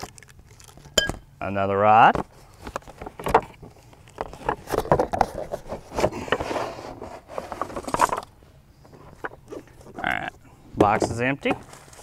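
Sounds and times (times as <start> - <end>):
cardboard box rustling and scraping: 4.3 - 8.3, 11.5 - 12.0.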